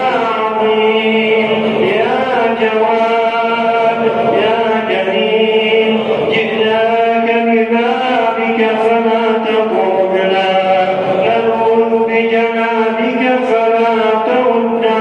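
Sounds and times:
chanted vocal drone: 0:00.0 - 0:15.0.

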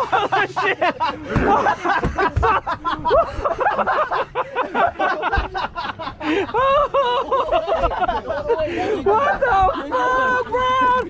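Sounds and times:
men making vocal noises: 0:00.0 - 0:03.3, 0:08.1 - 0:11.0.

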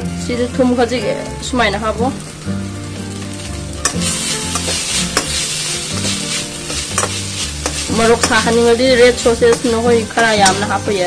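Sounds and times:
vegetables sizzling in a pan: 0:00.0 - 0:11.0
spatula clinking against pan: 0:03.8 - 0:08.7, 0:09.5 - 0:10.8.

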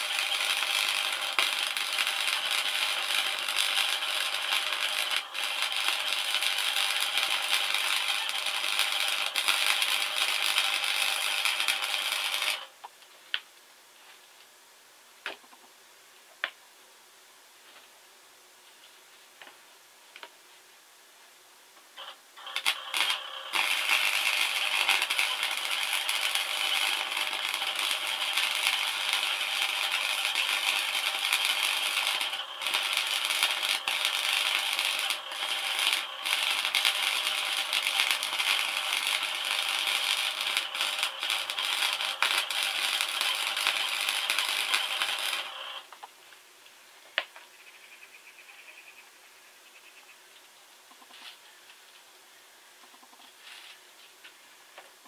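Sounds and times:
welding arc crackling: 0:00.0 - 0:12.8, 0:22.0 - 0:45.9.

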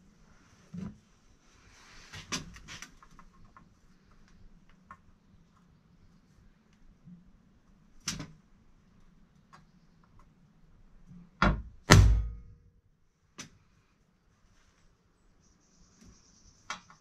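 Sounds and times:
hammer striking metal sheet: 0:11.9 - 0:12.6.

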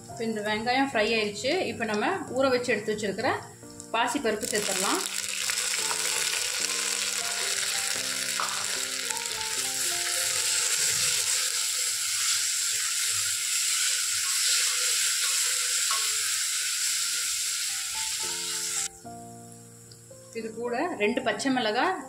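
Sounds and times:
soft background music: 0:00.0 - 0:22.0
food sizzling in oil: 0:03.6 - 0:19.1.

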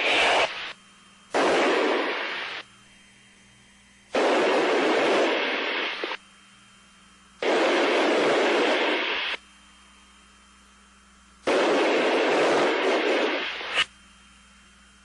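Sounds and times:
intercom rushing hiss bursts: 0:00.0 - 0:00.8, 0:01.4 - 0:02.7, 0:04.2 - 0:06.2, 0:07.4 - 0:09.4, 0:11.5 - 0:13.9
faint steady hum: 0:00.0 - 0:15.0.

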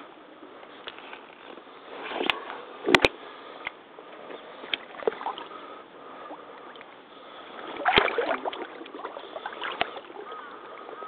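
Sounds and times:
boots sloshing in muddy water: 0:07.6 - 0:11.0.

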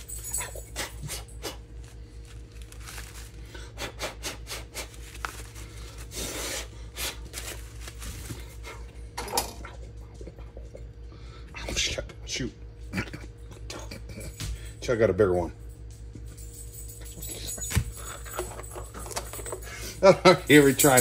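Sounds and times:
steady low hum: 0:00.0 - 0:21.0
corn husks rustling: 0:01.8 - 0:03.8, 0:04.7 - 0:08.7.

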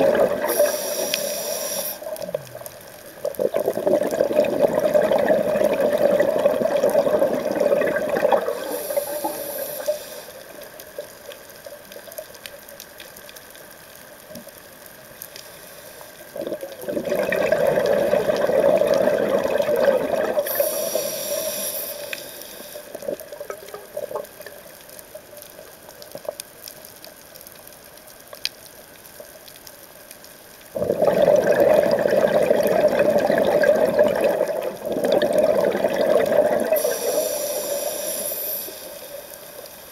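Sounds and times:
regulator hiss: 0:00.0 - 0:03.2, 0:08.4 - 0:11.1, 0:15.0 - 0:16.4, 0:20.3 - 0:23.1, 0:36.7 - 0:39.9
diver exhaling bubbles: 0:00.0 - 0:10.0, 0:16.3 - 0:22.1, 0:30.8 - 0:39.0
faint water noise: 0:00.0 - 0:39.9.

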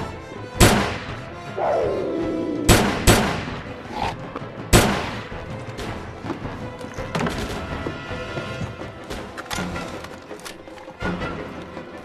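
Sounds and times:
film score music: 0:00.0 - 0:12.0
rifle shots with reverb: 0:02.7 - 0:03.6.

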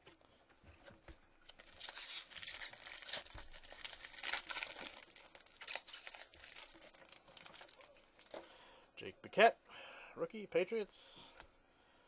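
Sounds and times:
foil wrapper crinkling and tearing: 0:01.5 - 0:08.4.

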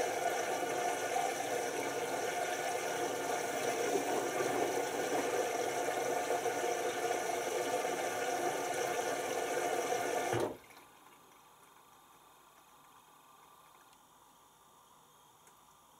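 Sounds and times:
washing machine drum whirring: 0:00.0 - 0:11.2.

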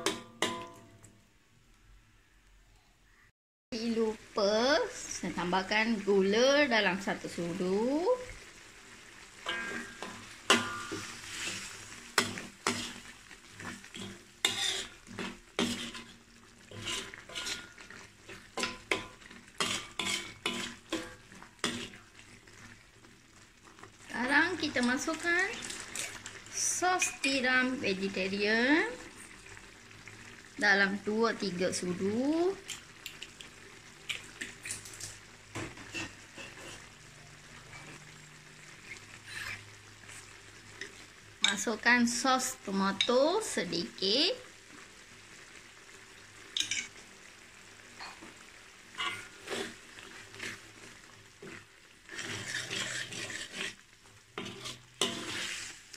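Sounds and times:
sauce sizzling: 0:03.8 - 0:55.9
ladle scraping metal wok: 0:09.4 - 0:22.0, 0:35.6 - 0:37.0, 0:38.8 - 0:40.2, 0:49.0 - 0:55.9.

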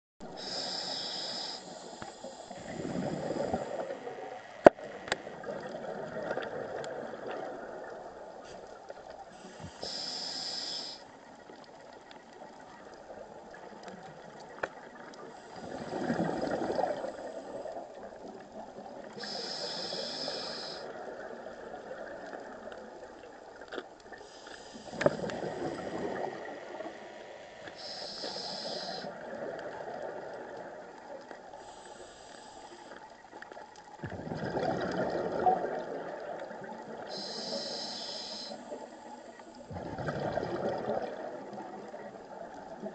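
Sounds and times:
scuba regulator inhalation hiss: 0:00.4 - 0:04.1, 0:09.3 - 0:11.1, 0:19.2 - 0:21.0, 0:24.2 - 0:26.2, 0:27.6 - 0:29.2, 0:31.6 - 0:33.0, 0:37.1 - 0:39.3
exhaled bubbles rushing: 0:05.4 - 0:08.0, 0:15.6 - 0:18.0, 0:25.1 - 0:26.9, 0:34.0 - 0:37.1, 0:39.7 - 0:42.3.

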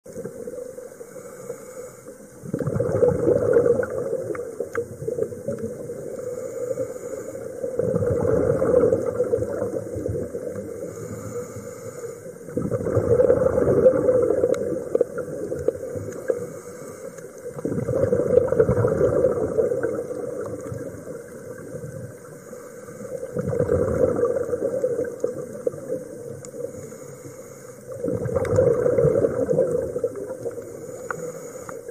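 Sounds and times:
exhaled bubbles rumbling: 0:00.0 - 0:01.0, 0:02.4 - 0:06.5, 0:07.4 - 0:11.2, 0:12.4 - 0:16.5, 0:17.2 - 0:22.4, 0:23.0 - 0:26.8, 0:27.9 - 0:31.9
diver breathing through regulator: 0:01.0 - 0:03.6, 0:06.0 - 0:08.9, 0:10.6 - 0:14.5, 0:15.7 - 0:18.0, 0:22.2 - 0:24.3, 0:26.5 - 0:28.1, 0:30.4 - 0:31.9.

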